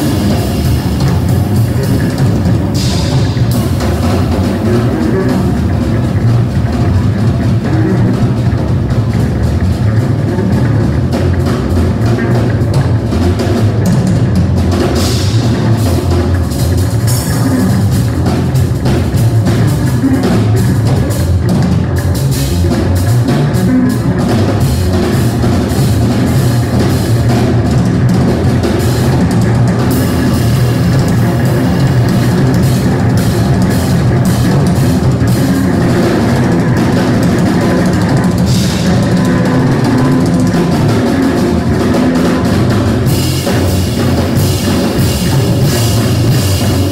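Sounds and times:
drum kit cymbal and drum strikes: 0:00.0 - 0:46.9
electric guitar: 0:00.0 - 0:46.9
steady bass drum: 0:00.0 - 0:46.9.

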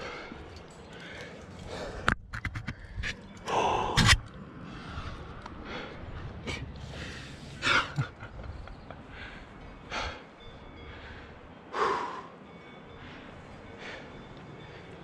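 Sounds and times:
person breathing forcefully: 0:00.0 - 0:08.2, 0:09.0 - 0:12.4.

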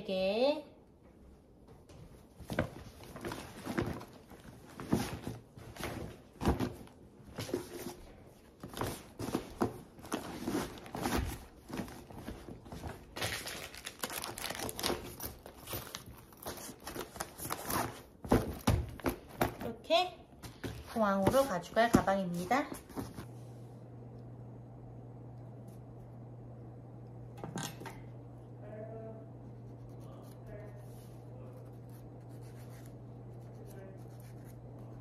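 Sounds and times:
rustling and crinkling of bag: 0:08.6 - 0:18.3.

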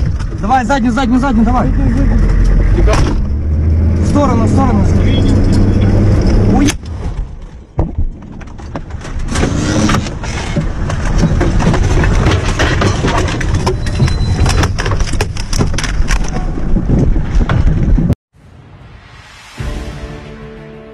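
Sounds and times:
rustling and scraping: 0:07.0 - 0:18.0
kit knocks and clatters: 0:07.4 - 0:18.2.

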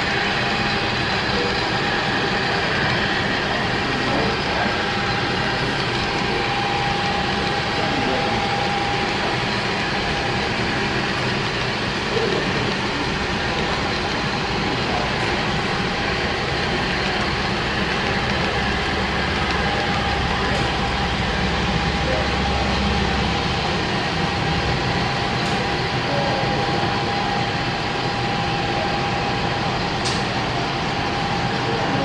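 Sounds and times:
model train wheels on rail: 0:00.0 - 0:24.0.

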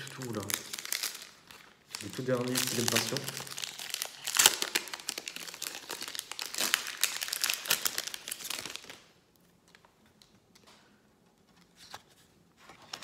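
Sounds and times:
foil wrapper crinkling and tearing: 0:00.0 - 0:09.1.

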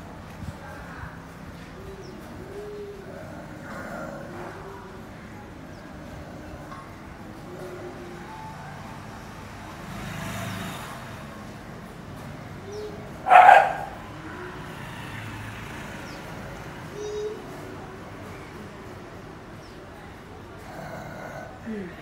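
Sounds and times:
outdoor traffic noise: 0:00.0 - 0:22.0
vehicle passing: 0:00.0 - 0:22.0
dog barking: 0:13.2 - 0:14.0.

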